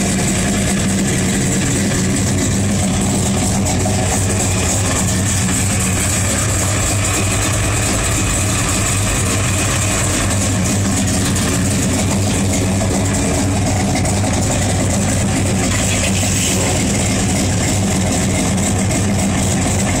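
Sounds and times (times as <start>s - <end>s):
car engine idling: 0.0s - 20.0s.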